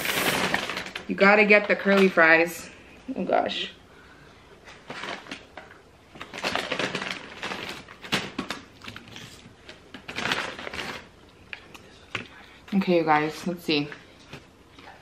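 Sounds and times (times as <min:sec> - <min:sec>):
paper crinkling and rustling: 0:04.6 - 0:11.2.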